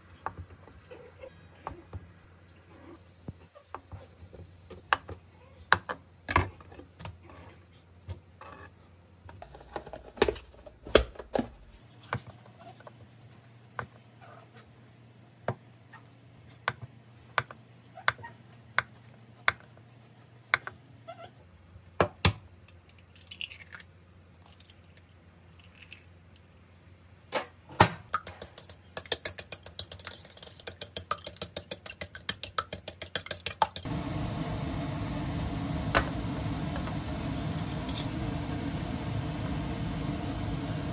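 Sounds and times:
clicks and taps: 28.2 - 33.9
steady hum: 33.6 - 40.9.

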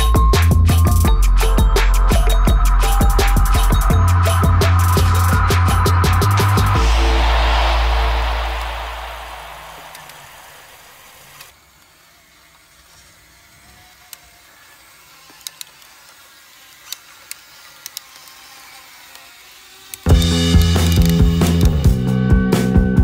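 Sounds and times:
toy electric motor hum: 0.0 - 6.7, 11.4 - 21.7
background music: 0.0 - 10.5.

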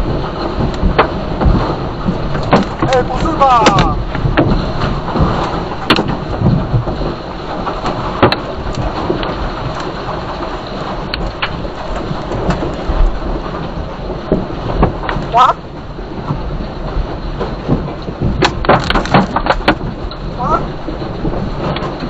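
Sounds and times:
rockfall rumble and rattle: 0.0 - 22.0
stones cracking: 2.2 - 6.1.

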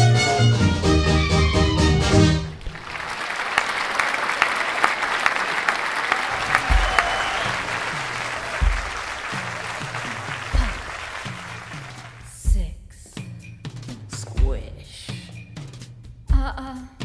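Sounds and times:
audience applauding: 2.4 - 12.3.

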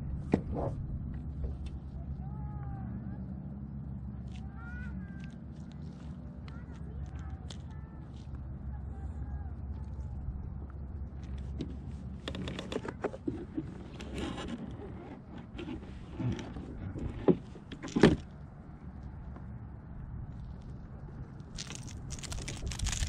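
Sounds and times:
clicks and rustling: 21.5 - 23.0.

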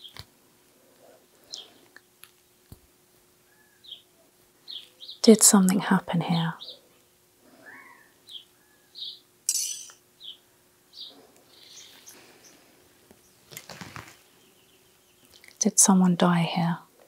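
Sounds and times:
faint steady hum: 0.0 - 17.0
bird chirping: 3.4 - 5.2, 6.5 - 6.9, 7.6 - 12.6, 14.2 - 15.5
rustle: 13.4 - 14.3.

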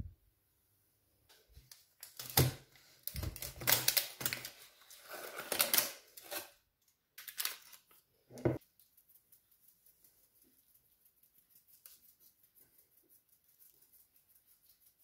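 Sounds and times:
parchment paper rustling: 1.4 - 6.6, 7.2 - 15.0.

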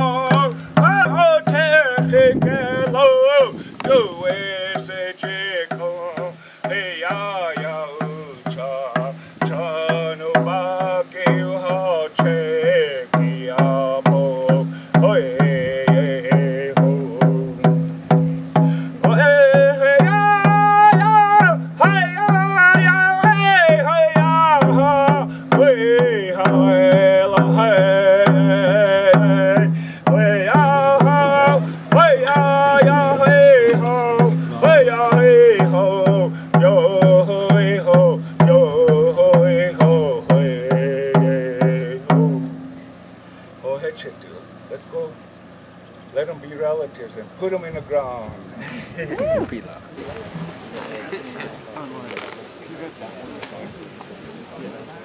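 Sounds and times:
steady drum beat: 0.0 - 42.8.

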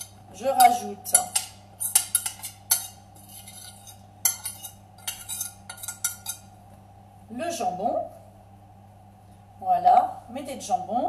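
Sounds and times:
fork scraping and tapping plate: 0.0 - 6.5
faint steady hum: 0.0 - 11.0.

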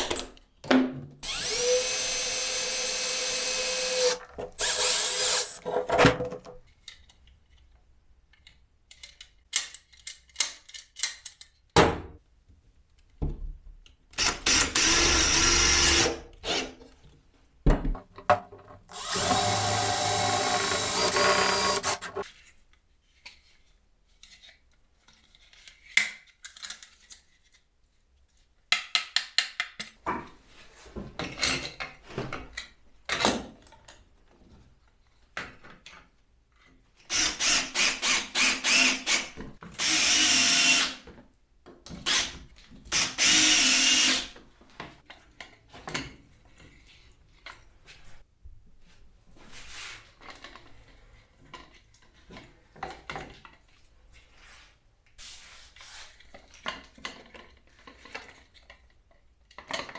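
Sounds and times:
drill drilling into metal: 1.2 - 5.6, 14.2 - 16.6, 18.9 - 22.2, 37.1 - 39.2, 39.8 - 40.9, 43.0 - 44.3.

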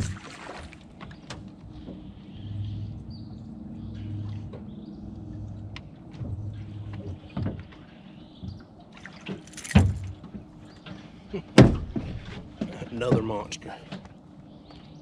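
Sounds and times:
water splashing: 0.0 - 1.2, 8.8 - 10.2.

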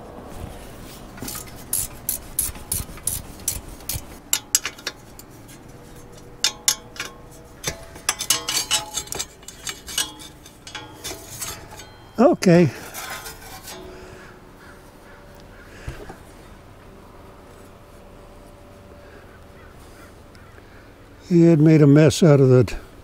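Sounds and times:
metal clicks and scraping: 1.1 - 14.8.

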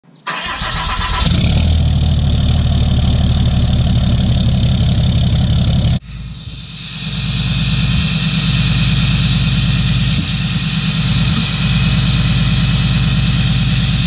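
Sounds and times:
truck engine cranking: 0.3 - 6.0
truck engine running: 0.3 - 14.0.

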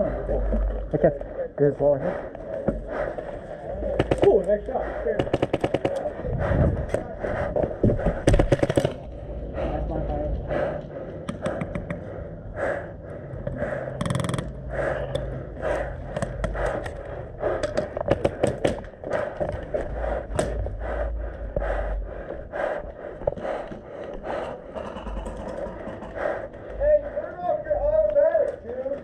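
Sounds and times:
person breathing: 0.0 - 29.0
sharp clicks: 5.2 - 6.1, 8.2 - 9.2, 11.2 - 12.1, 13.5 - 20.6
movement noise: 5.8 - 29.0.

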